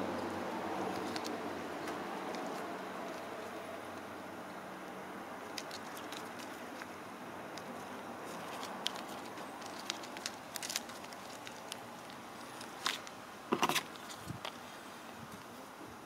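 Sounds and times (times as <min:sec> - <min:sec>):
steady hiss: 0:00.0 - 0:16.0
plastic bags crinkling: 0:07.6 - 0:13.2.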